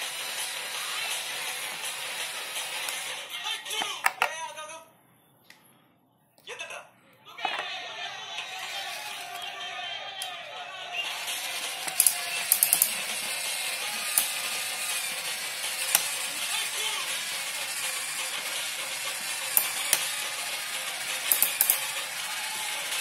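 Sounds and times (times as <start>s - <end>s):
toy power drill whirring: 0.0s - 4.0s, 8.4s - 10.4s, 11.0s - 23.0s
sharp plastic clicks: 11.8s - 13.0s, 21.3s - 21.9s.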